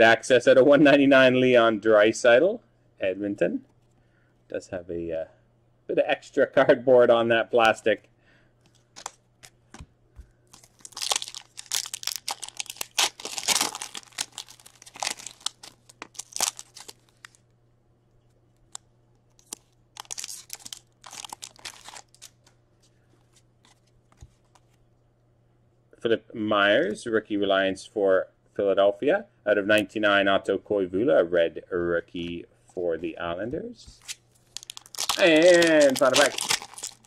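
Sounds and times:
foil wrapper crinkling: 10.5s - 17.4s, 18.7s - 22.5s, 34.1s - 37.0s.

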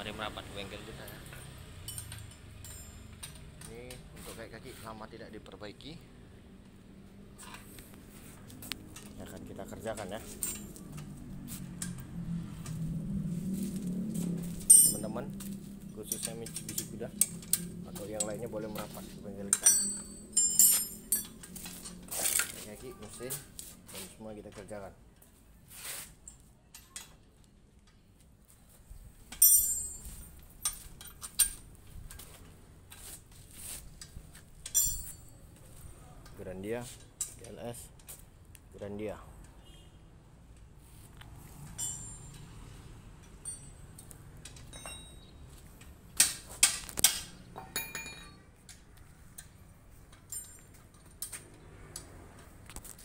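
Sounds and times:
metal tools clanking: 1.0s - 4.4s, 8.8s - 11.2s, 14.3s - 23.6s, 29.3s - 32.3s, 34.0s - 38.1s, 41.6s - 51.7s.

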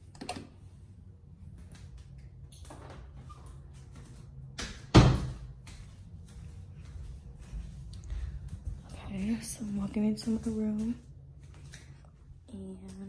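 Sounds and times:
door shutting thud: 4.6s - 5.4s.

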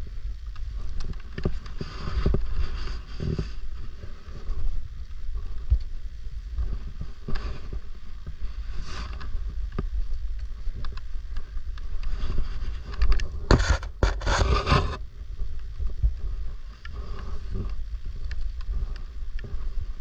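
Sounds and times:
wind rumbling on microphone: 0.0s - 20.0s
scraping and rustling handling noises: 6.6s - 15.0s.

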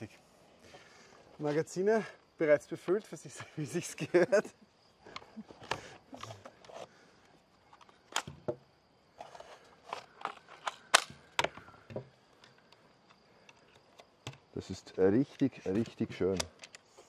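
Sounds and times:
crossbow clicks and knocks: 9.2s - 14.4s, 15.1s - 17.0s.

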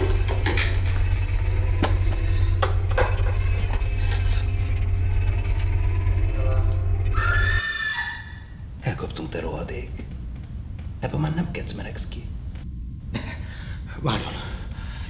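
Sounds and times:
high shriek: 0.0s - 8.8s
deep steady rumble: 0.0s - 15.0s.

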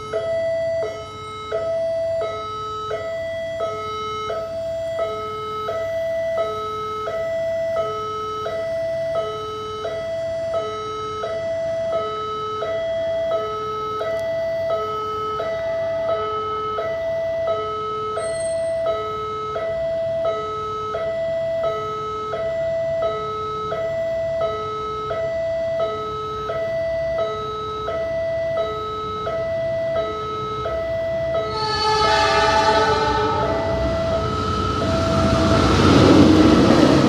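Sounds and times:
train horn: 31.4s - 37.0s
train rumble: 31.4s - 37.0s.

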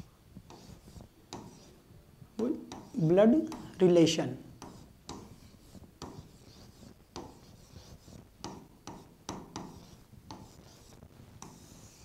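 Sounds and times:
pen scratching on whiteboard: 0.0s - 1.8s, 2.4s - 3.8s, 4.6s - 12.0s
pen tapping on screen: 8.4s - 10.6s.

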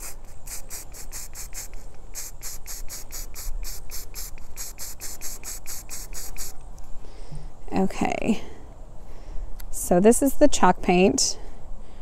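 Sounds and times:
spray can hissing bursts: 0.0s - 6.6s.

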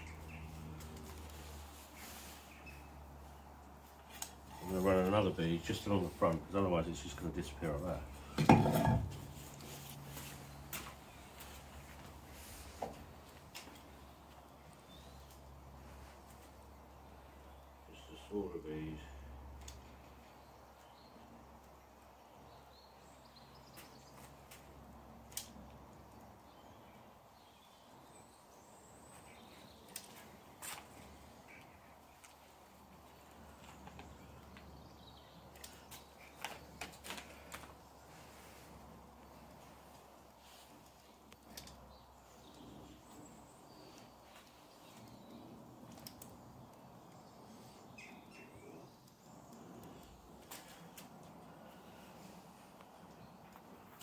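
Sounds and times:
distant birds chirping: 0.0s - 54.0s
bird chirps: 47.2s - 50.1s.

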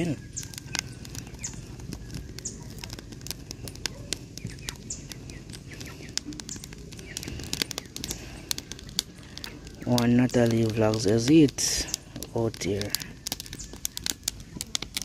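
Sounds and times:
wood fire crackling: 0.0s - 15.0s
faint bird chirps: 3.8s - 8.8s.

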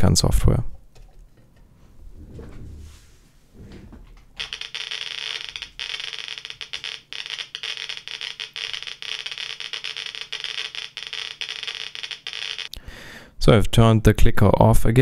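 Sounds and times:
geiger counter clicking rapidly: 4.4s - 12.8s.

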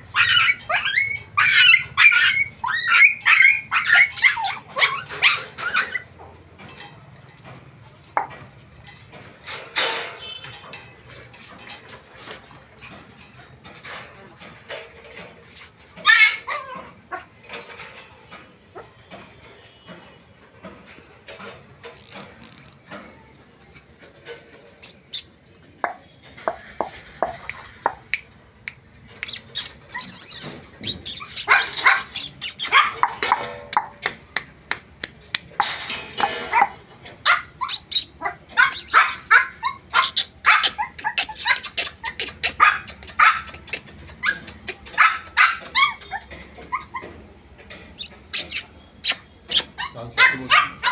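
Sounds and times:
puppy barking: 0.1s - 6.0s, 31.1s - 33.4s, 36.5s - 47.0s, 49.5s - 50.9s.

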